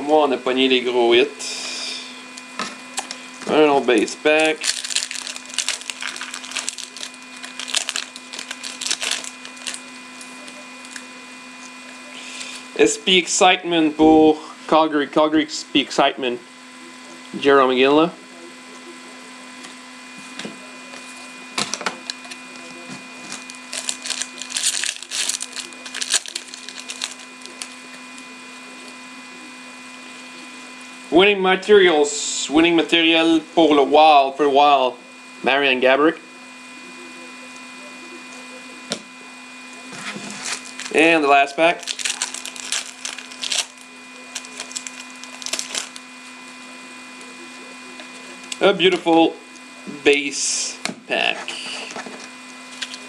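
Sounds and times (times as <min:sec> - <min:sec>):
low steady hum: 0:00.0 - 0:13.1
foil wrapper crinkling: 0:03.9 - 0:11.1, 0:21.6 - 0:28.2, 0:40.4 - 0:41.0, 0:41.7 - 0:46.1, 0:52.7 - 0:53.0.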